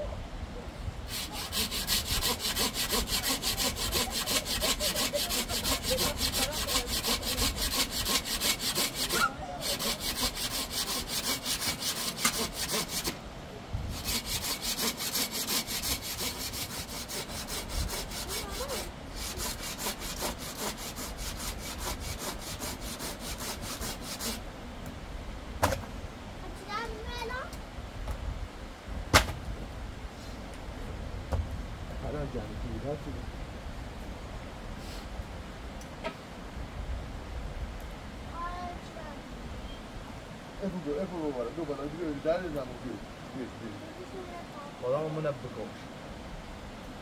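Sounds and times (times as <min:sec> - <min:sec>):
hand saw cutting wood: 0:01.1 - 0:13.2, 0:13.9 - 0:24.4.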